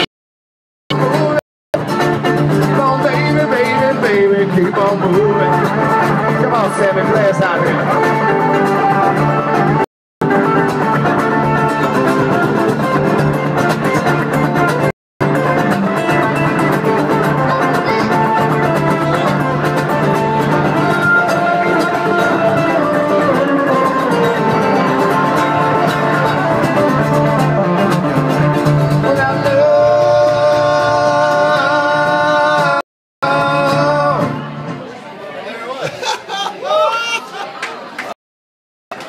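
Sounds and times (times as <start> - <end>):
two acoustic guitars: 0.9 - 35.1
person singing: 2.6 - 9.4, 16.1 - 27.8, 28.9 - 34.6.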